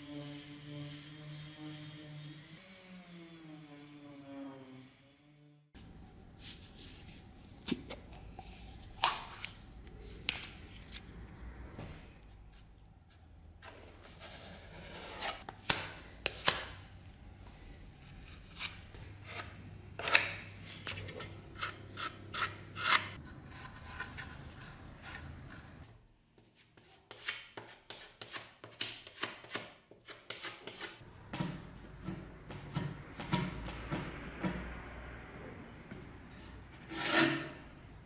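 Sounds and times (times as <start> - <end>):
putty knife scraping wood: 18.0 - 25.8, 26.8 - 31.0, 36.8 - 37.6.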